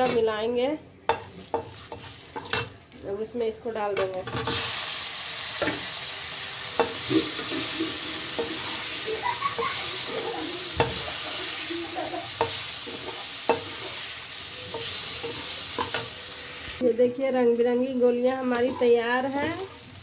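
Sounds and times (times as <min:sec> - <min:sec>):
food sizzling in hot oil: 0:04.2 - 0:20.0.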